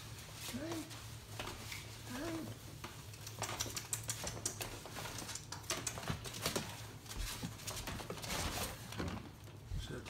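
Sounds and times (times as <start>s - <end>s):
puppy claws clicking on plastic: 3.0s - 6.8s.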